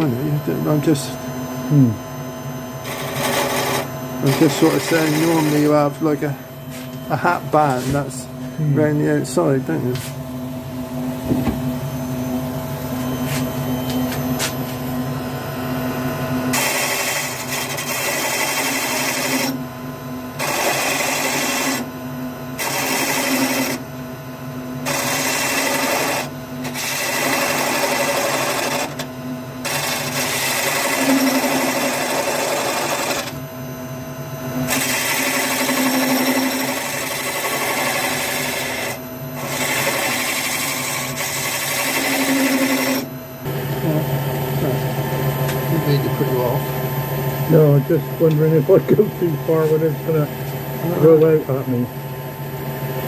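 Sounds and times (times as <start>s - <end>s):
wood lathe humming: 0.0s - 1.8s, 2.4s - 10.2s, 10.9s - 24.1s, 24.8s - 33.5s, 34.5s - 53.0s
turning tool shaving wood: 2.8s - 6.2s, 16.5s - 19.6s, 20.4s - 21.9s, 22.6s - 23.8s, 24.8s - 33.4s, 34.7s - 43.1s.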